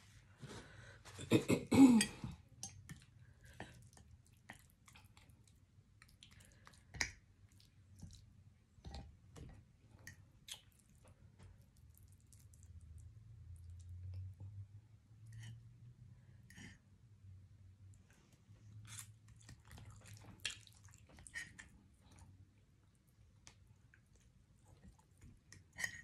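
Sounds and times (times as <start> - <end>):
wet chewing: 2.9 - 8.3, 10.4 - 11.1, 18.8 - 22.2.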